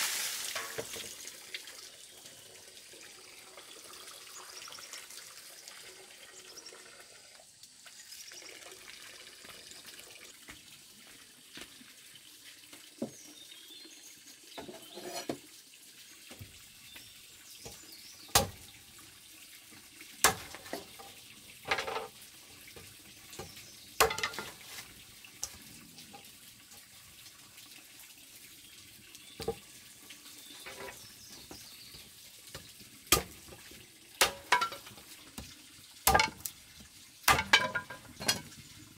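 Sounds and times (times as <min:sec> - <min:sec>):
water splashing in a basin: 0:00.0 - 0:07.1, 0:15.3 - 0:38.9
machete chopping wood: 0:18.4 - 0:18.6, 0:24.0 - 0:24.5, 0:33.1 - 0:33.4, 0:34.2 - 0:34.6, 0:36.1 - 0:36.3, 0:37.3 - 0:37.6.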